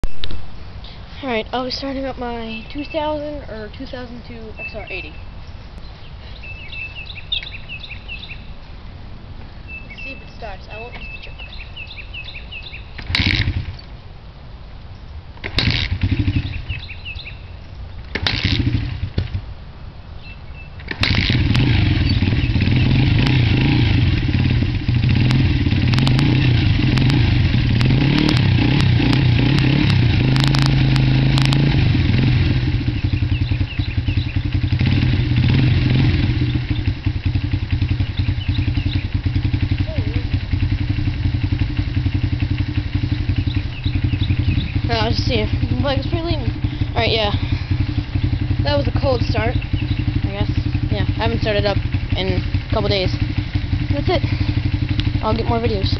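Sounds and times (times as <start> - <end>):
motorcycle engine running: 1.2 - 5.6, 6.4 - 8.7, 9.6 - 14.0, 15.4 - 19.6, 20.2 - 55.9
motorcycle engine revving: 9.7 - 13.9, 15.4 - 19.5, 20.2 - 55.9
motorcycle kick-start attempts: 12.6 - 13.9, 15.4 - 16.9, 18.1 - 19.4, 20.8 - 55.9.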